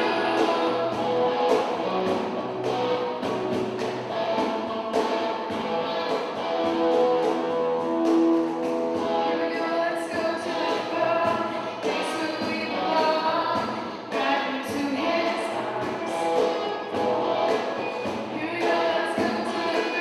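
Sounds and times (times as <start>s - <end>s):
drum and cymbal hits: 0.0s - 9.3s
electric guitar chords: 0.0s - 9.8s, 15.5s - 20.0s.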